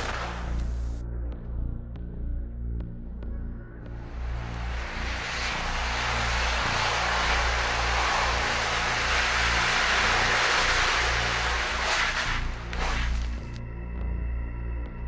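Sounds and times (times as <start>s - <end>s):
thermite roaring hiss: 0.0s - 0.9s, 4.0s - 13.6s.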